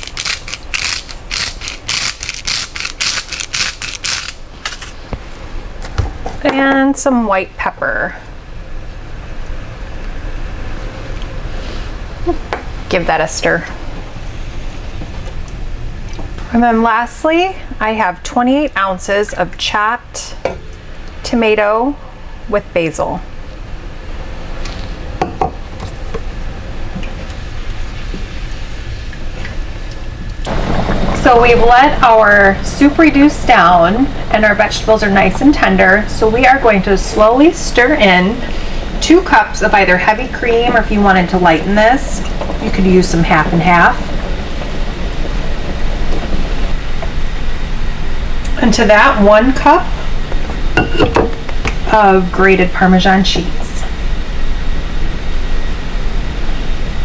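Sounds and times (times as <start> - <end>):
salt grinder crunching: 0.0 - 5.0
steady low hum: 0.0 - 57.0.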